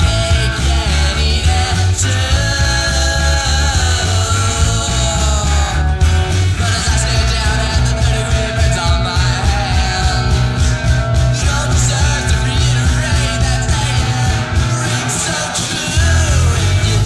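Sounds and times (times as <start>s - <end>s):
rock music: 0.0s - 17.0s.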